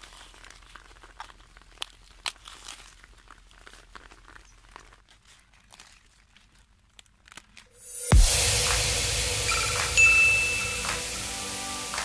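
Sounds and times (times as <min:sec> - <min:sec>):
lettuce crackles: 0:00.0 - 0:08.0
lettuce leaves rustling: 0:00.0 - 0:08.0.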